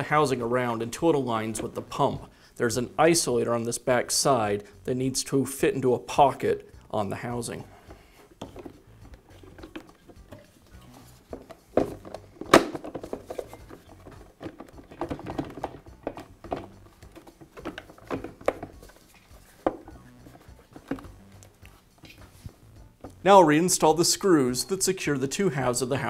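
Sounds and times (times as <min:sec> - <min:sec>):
plastic housing knocks and rubs: 0:08.3 - 0:21.4.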